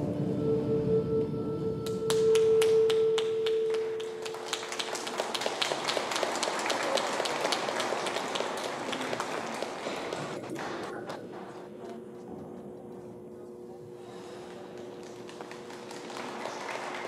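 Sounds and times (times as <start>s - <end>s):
audience applauding: 2.1s - 11.7s, 14.4s - 17.0s.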